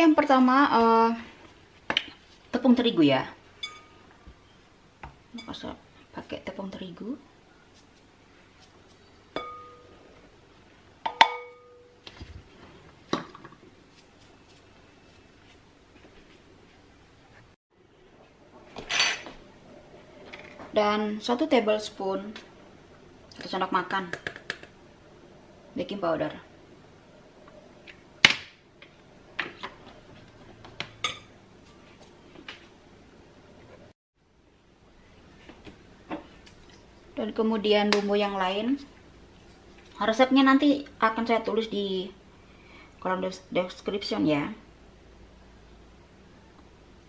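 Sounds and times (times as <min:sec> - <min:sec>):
metal spoon clinking glass bowl: 0:03.6 - 0:03.9, 0:09.4 - 0:09.9.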